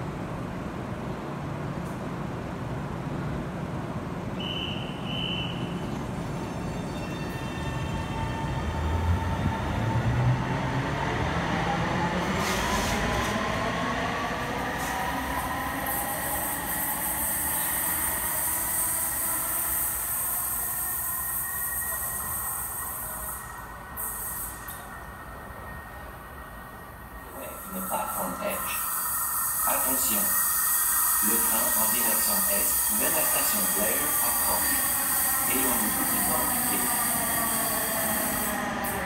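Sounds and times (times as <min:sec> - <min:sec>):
train wheels squealing: 0:04.4 - 0:10.4, 0:14.8 - 0:26.0, 0:27.2 - 0:39.0.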